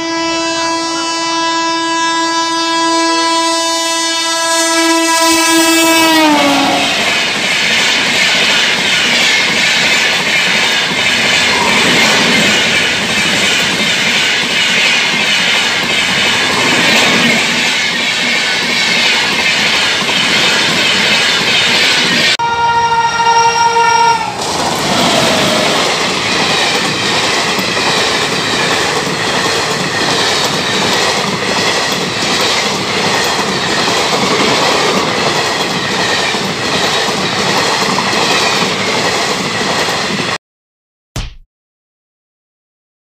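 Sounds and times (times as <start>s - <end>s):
train horn: 0.0s - 7.3s, 22.4s - 25.1s
train rushing past: 5.2s - 40.4s.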